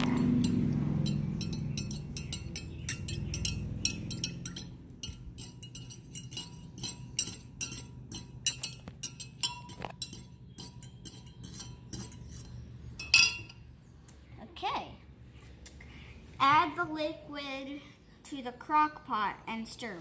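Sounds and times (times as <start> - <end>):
spoon clinking against glass: 0.0 - 13.6.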